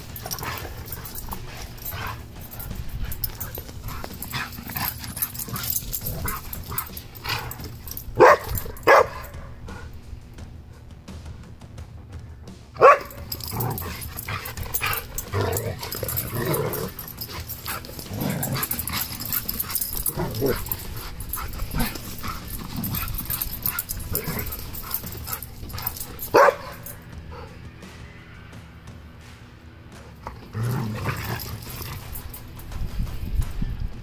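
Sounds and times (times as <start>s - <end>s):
dogs vocalizing while playing: 0.0s - 10.1s, 12.8s - 27.6s, 30.2s - 32.8s
dog barking: 0.2s - 9.6s, 12.8s - 27.5s.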